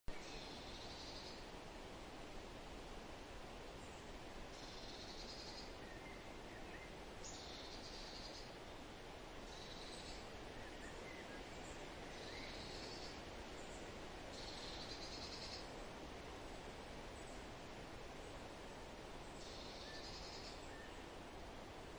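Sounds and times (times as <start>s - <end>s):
steady outdoor hiss: 0.1s - 21.9s.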